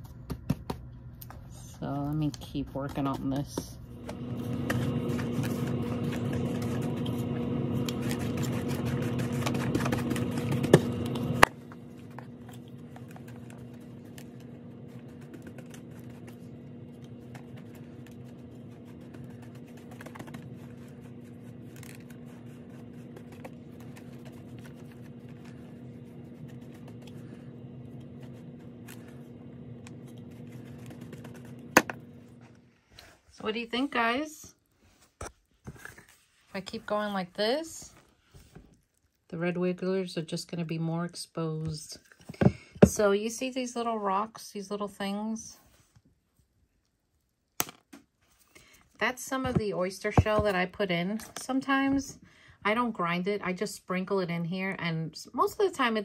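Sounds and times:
steady low hum: 0.0s - 35.2s, 48.4s - 56.0s
brush strokes scratching a tub: 4.0s - 32.2s.

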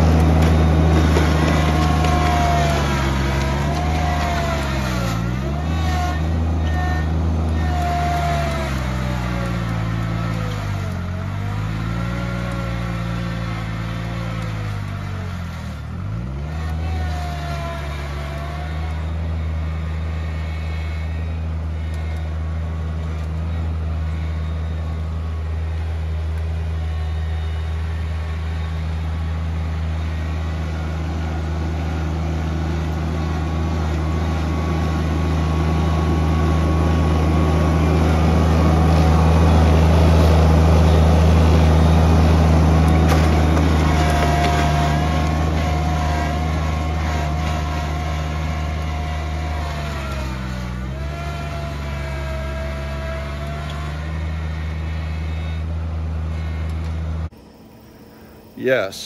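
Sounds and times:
tractor diesel engine under load: 0.0s - 59.0s
steady whine: 54.0s - 59.0s.

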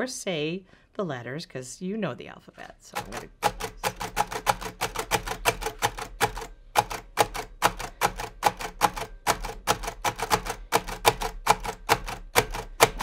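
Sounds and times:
braille typewriter clacking: 3.0s - 13.0s.

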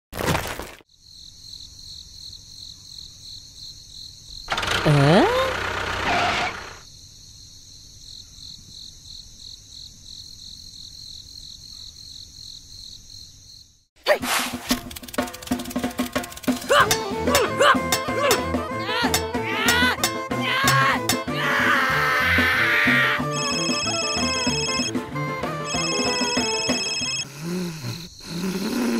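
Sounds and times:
crickets chirring: 0.9s - 13.9s, 18.8s - 25.0s, 25.7s - 28.9s
call rising in pitch: 16.5s - 27.2s.

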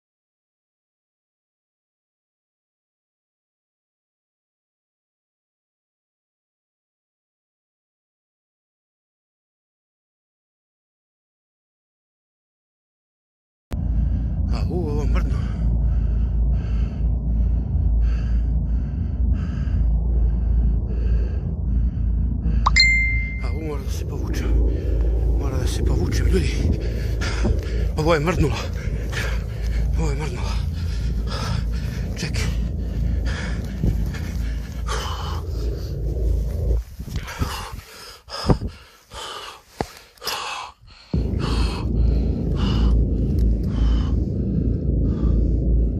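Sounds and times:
person breathing heavily: 13.8s - 23.1s, 23.7s - 45.9s
low microphone rumble: 13.8s - 39.3s, 40.9s - 45.9s.

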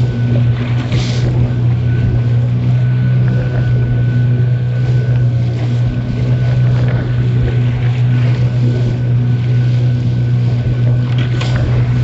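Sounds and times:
boat engine droning: 0.0s - 12.0s
water washing past hull: 0.0s - 12.0s
wind on microphone: 0.0s - 12.0s.

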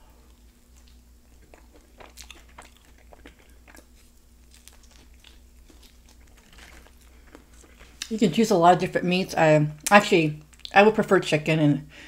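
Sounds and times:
chewing and biting food: 0.2s - 8.2s.

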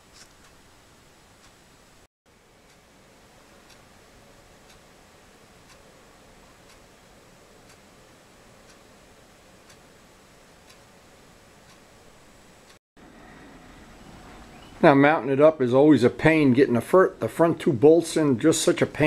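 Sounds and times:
clock ticking: 3.6s - 3.8s, 4.6s - 4.9s, 5.6s - 6.0s, 6.6s - 7.0s, 7.6s - 7.9s, 8.6s - 8.9s, 9.6s - 10.0s, 10.6s - 11.0s.

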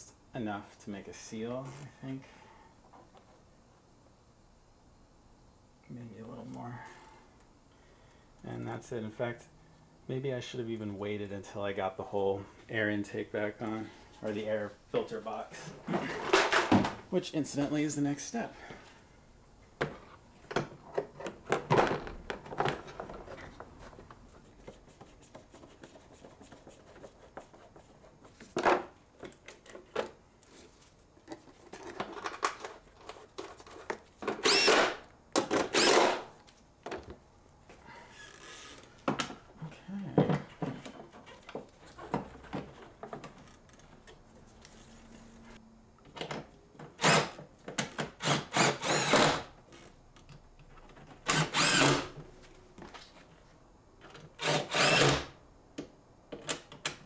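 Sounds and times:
plastic parts knocking and clicking: 31.2s - 34.5s.

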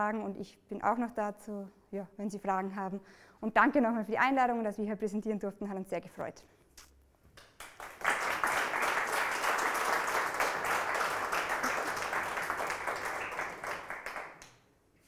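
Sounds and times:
audience applause: 7.6s - 14.5s.

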